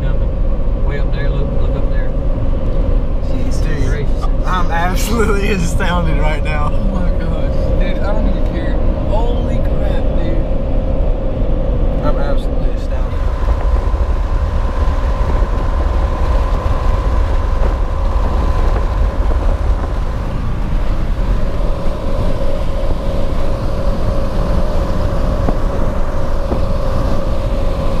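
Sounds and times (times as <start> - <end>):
constant whine: 0.0 - 28.0
road noise low rumble: 0.0 - 28.0.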